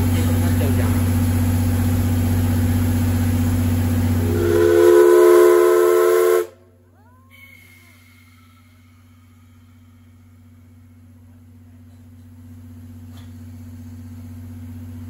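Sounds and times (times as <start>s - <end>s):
steam hissing: 4.2s - 6.5s, 7.4s - 10.3s
steam whistle blowing: 4.2s - 6.6s.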